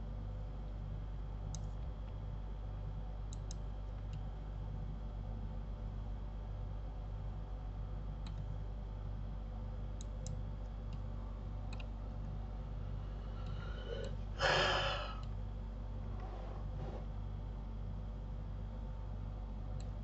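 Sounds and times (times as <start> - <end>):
low electrical hum: 0.0 - 20.0
computer mouse clicks: 1.5 - 1.8, 3.3 - 4.3, 8.2 - 8.5, 11.7 - 11.9.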